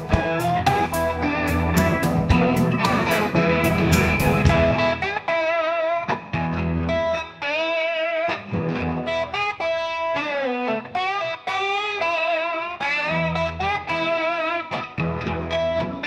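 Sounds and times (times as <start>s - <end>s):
bass line: 0.0s - 5.0s
electric guitar lead: 0.0s - 16.0s.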